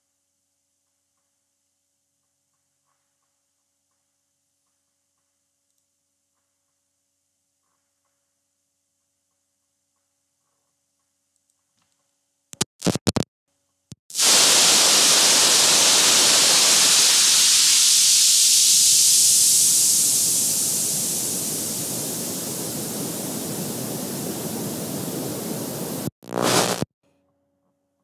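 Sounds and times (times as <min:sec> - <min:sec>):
short crackles: 0:12.6 - 0:13.3, 0:19.8 - 0:26.9
loud rushing hiss: 0:14.1 - 0:26.9.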